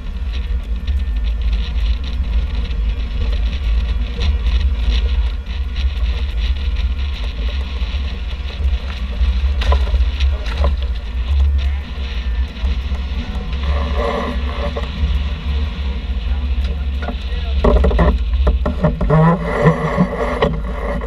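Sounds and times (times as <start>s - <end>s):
water rushing along hulls: 0.0s - 21.0s
wind buffeting microphone: 0.0s - 21.0s.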